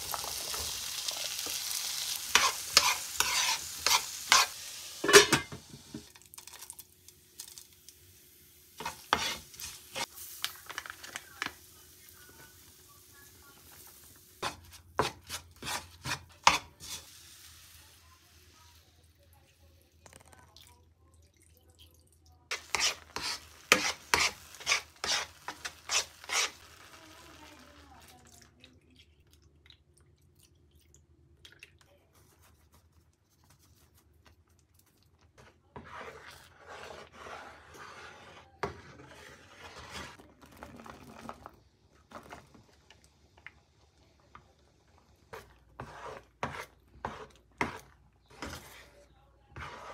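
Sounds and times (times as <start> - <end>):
spatula scraping frying pan: 0.5 - 5.6, 8.7 - 10.2, 14.4 - 17.2, 22.5 - 27.3, 35.4 - 40.2, 45.3 - 49.9.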